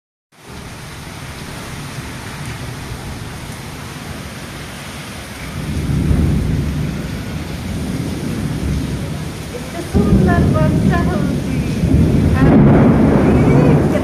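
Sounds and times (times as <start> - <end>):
heavy rain pouring: 0.4 - 14.0
low rumble of thunder: 5.5 - 14.0.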